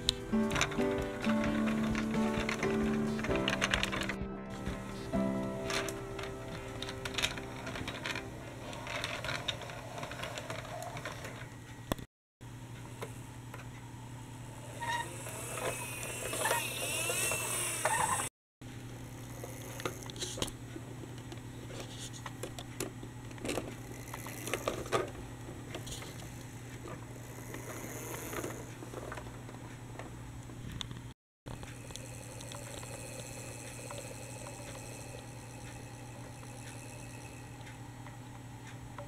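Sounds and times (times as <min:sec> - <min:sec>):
steady low hum: 0:00.0 - 0:10.7, 0:31.5 - 0:39.0
plastic toy clicks and rattles: 0:00.5 - 0:04.2, 0:05.7 - 0:11.5, 0:15.0 - 0:18.2, 0:22.4 - 0:26.4.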